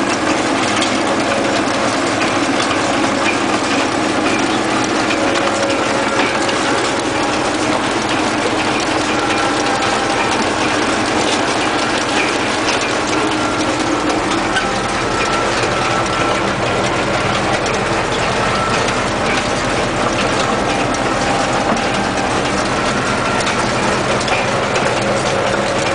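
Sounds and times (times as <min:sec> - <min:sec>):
mechanical clatter: 0:00.0 - 0:25.9
tractor engine running: 0:00.0 - 0:25.9.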